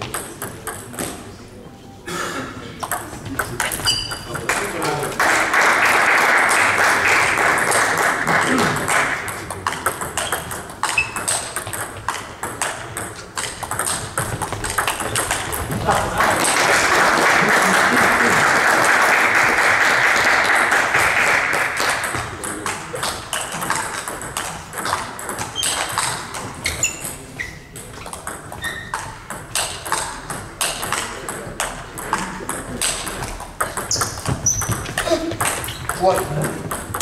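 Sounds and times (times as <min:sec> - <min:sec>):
table tennis balls clicking: 0:00.0 - 0:01.2, 0:02.8 - 0:05.2, 0:07.6 - 0:16.7, 0:20.9 - 0:37.0
crowd noise: 0:00.0 - 0:37.0.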